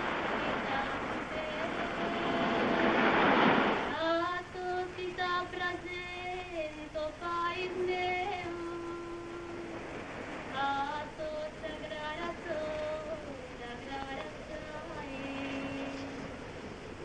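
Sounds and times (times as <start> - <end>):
short rushing noise: 0.0 - 4.0.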